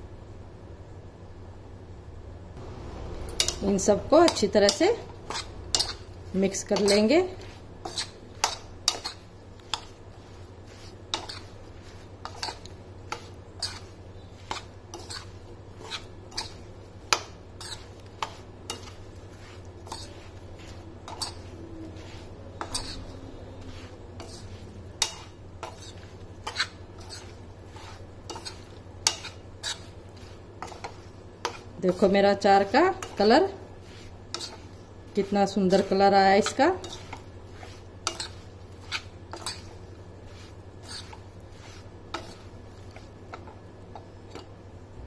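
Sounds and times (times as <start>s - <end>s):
spoon stirring food in pan: 2.6s - 44.8s.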